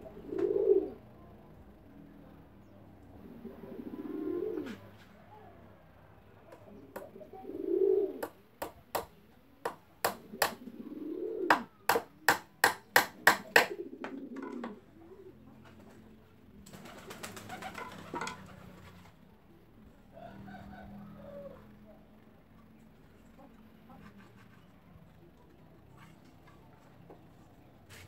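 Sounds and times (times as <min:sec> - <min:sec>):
low cooing calls: 0:00.0 - 0:01.2, 0:02.6 - 0:05.5, 0:06.5 - 0:08.4, 0:10.2 - 0:12.0, 0:13.6 - 0:15.8, 0:20.0 - 0:22.1
hammer tapping nails into wood: 0:09.7 - 0:10.6, 0:11.5 - 0:13.7.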